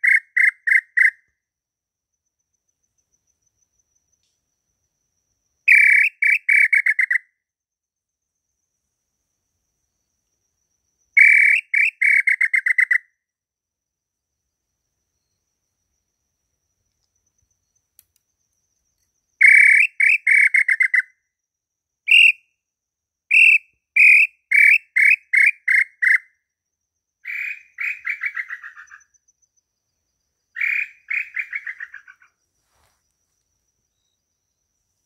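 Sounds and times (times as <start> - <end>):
bird call whistle notes: 19.4 - 21.0, 22.1 - 22.4, 23.3 - 25.7.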